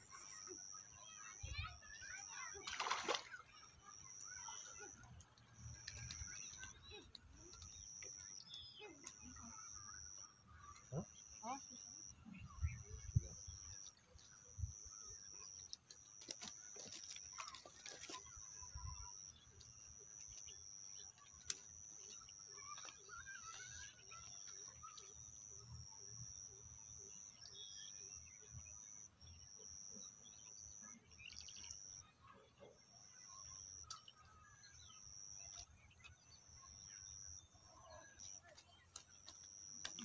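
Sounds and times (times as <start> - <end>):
soft bird chirps: 0.0 - 40.0.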